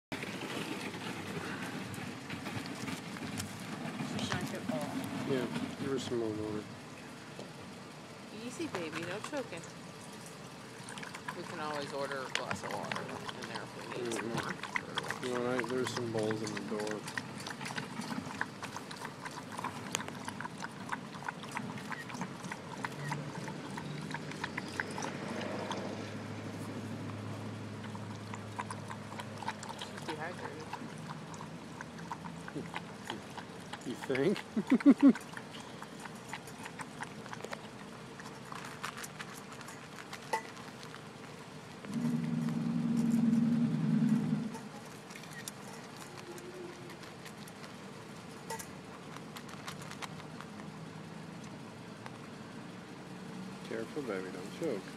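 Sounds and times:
dog lapping water from metal bowl: 8.6s - 50.5s
low drone: 41.8s - 44.9s.

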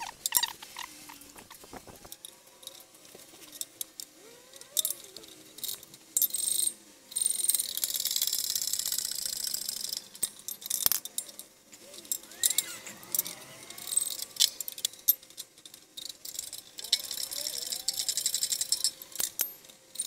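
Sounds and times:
metal tools clinking: 10.2s - 20.0s
fast ratcheting: 11.9s - 20.0s.

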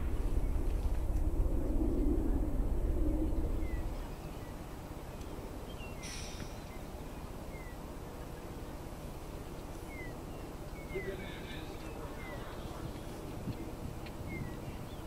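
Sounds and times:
steady low hiss: 0.0s - 15.0s
bird chirps: 3.6s - 8.8s, 9.5s - 13.2s, 14.0s - 15.0s.

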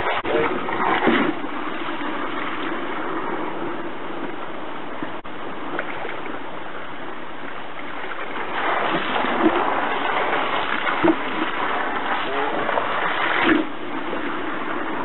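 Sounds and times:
water jet splashing into tub: 8.1s - 14.4s.

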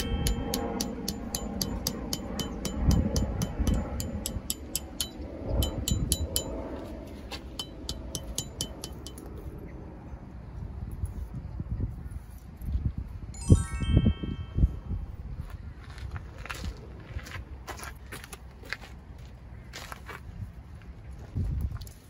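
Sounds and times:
music with fast ticking beat: 0.0s - 6.5s
wind buffeting microphone: 0.0s - 8.8s, 9.5s - 17.6s, 20.2s - 22.0s.

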